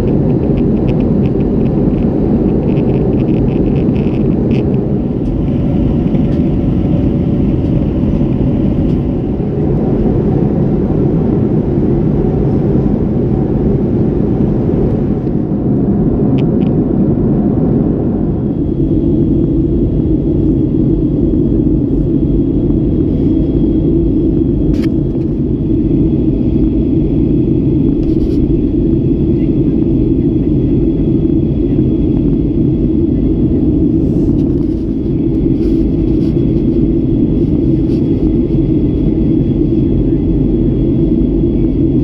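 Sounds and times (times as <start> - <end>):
airplane cabin roar: 0.0 - 42.0
faint high whine: 0.0 - 42.0.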